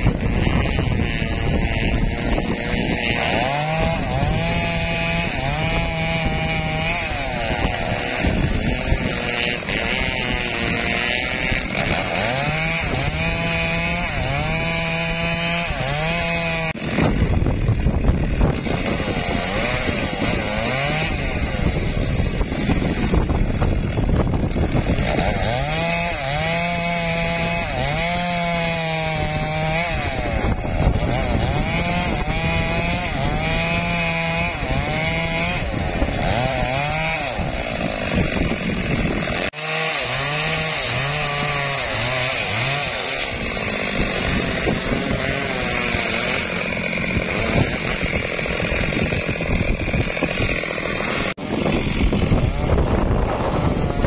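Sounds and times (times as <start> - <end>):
chainsaw cutting log: 0.0 - 54.0.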